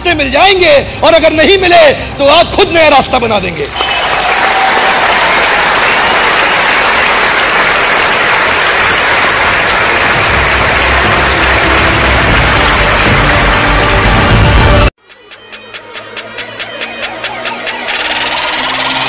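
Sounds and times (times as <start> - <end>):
audience applauding and cheering: 3.7 - 14.9
music with low bass beat: 14.2 - 19.0.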